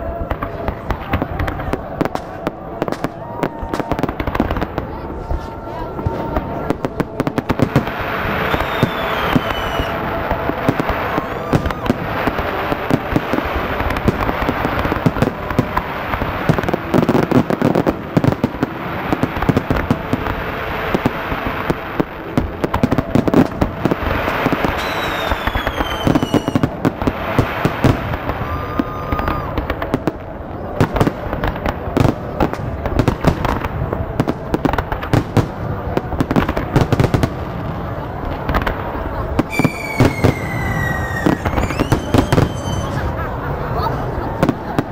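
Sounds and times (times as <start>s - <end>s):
firework whistle gliding down: 0.0s - 18.3s, 22.8s - 29.9s, 39.5s - 43.3s
fireworks bangs and crackles: 0.0s - 44.9s.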